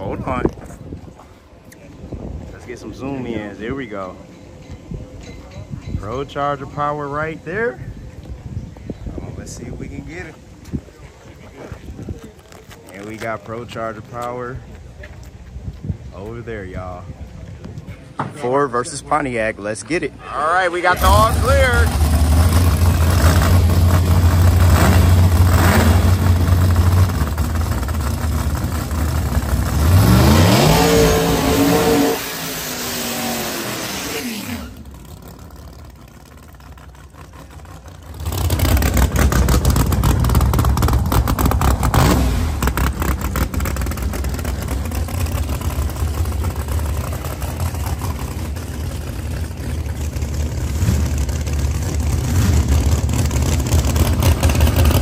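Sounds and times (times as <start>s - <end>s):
drag racing car engines: 0.0s - 55.0s.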